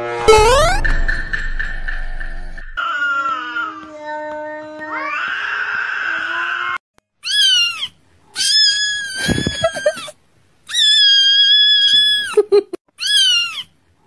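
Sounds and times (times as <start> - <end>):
kitten meowing: 5.0 - 10.0, 10.7 - 12.3, 13.0 - 13.7
kitten squeaks: 7.2 - 10.1, 10.7 - 13.7.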